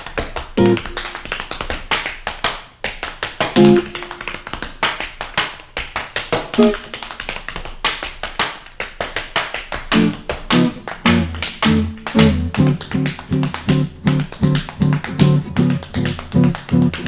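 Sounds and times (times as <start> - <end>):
tap shoes on wooden floor: 0.0 - 8.4, 9.1 - 17.0
music with low plucked notes: 0.6 - 1.0, 3.6 - 4.2, 6.6 - 6.9, 10.0 - 17.0.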